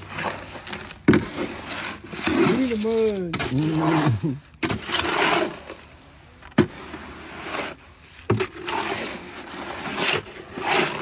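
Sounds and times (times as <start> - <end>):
tool scraping through concrete: 0.0 - 11.0.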